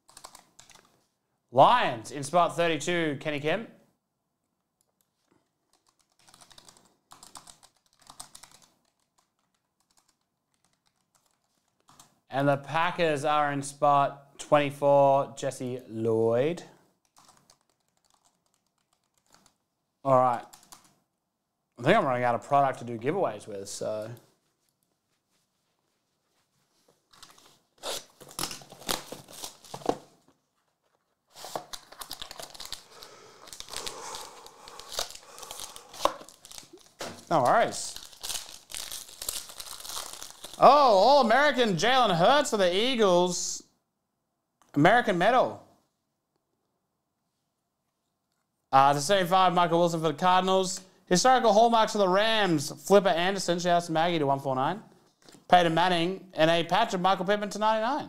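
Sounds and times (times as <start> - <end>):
typing on computer keyboard: 0.0 - 0.9, 5.7 - 12.1, 17.0 - 19.6, 20.4 - 21.0
plastic wrapping crinkling: 24.5 - 41.4.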